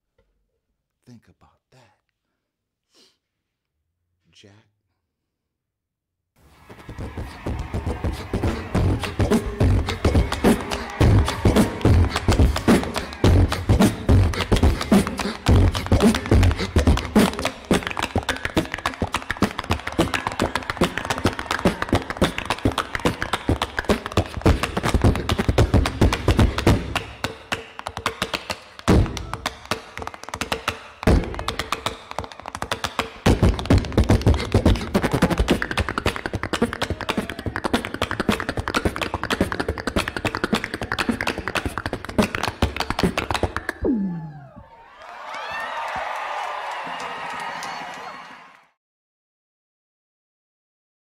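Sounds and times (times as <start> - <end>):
beatboxing clicks and thumps: 6.8 - 44.5
tap dancing footwork on stage: 6.9 - 43.7
falling vocal glide: 43.7 - 44.7.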